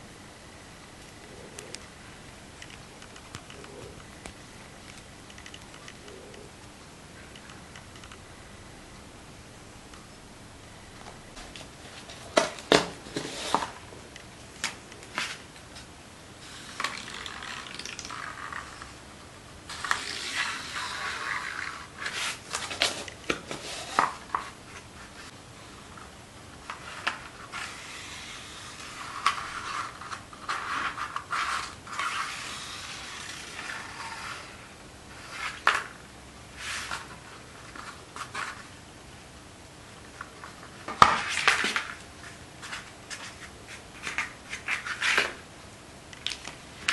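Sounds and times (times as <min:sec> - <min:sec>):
rubbing and scraping: 0:26.7 - 0:35.9.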